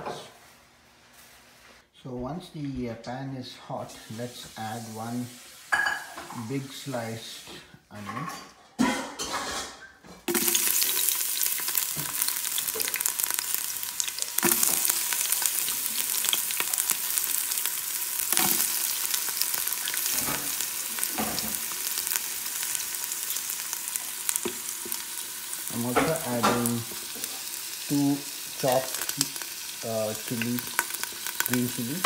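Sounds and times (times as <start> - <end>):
onion sizzling in hot oil: 4.0 - 7.3, 10.3 - 32.0.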